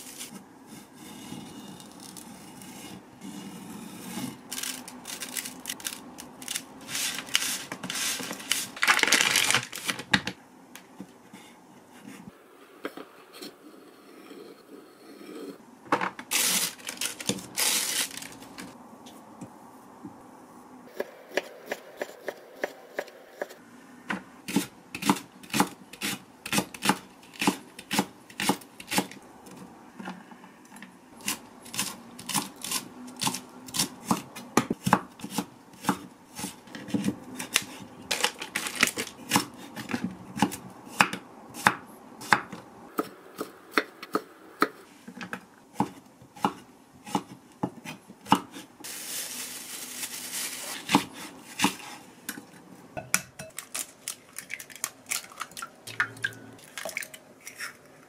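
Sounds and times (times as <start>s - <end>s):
knife chopping on wooden board: 45.8s - 48.6s.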